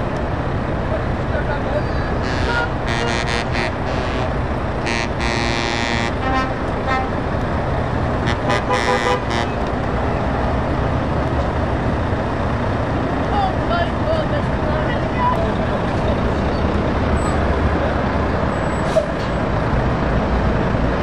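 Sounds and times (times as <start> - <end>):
diesel engines idling: 0.0 - 21.0
truck horn blasts: 2.2 - 7.3, 8.2 - 9.7.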